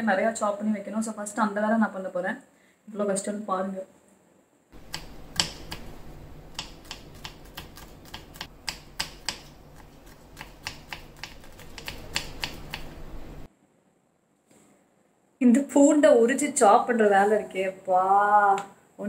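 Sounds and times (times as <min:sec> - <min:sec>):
knife chopping on wooden board: 0:04.8 - 0:13.0
low hum: 0:04.8 - 0:13.5.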